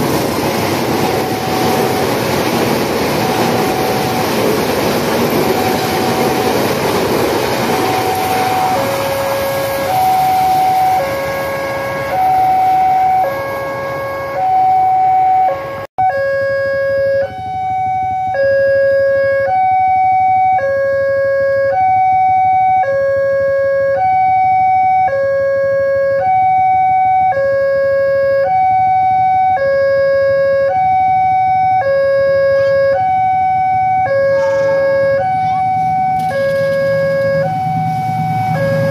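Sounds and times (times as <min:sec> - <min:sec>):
passing train rushing: 0:00.0 - 0:15.8, 0:33.0 - 0:38.9
two-tone warning siren: 0:00.0 - 0:38.9.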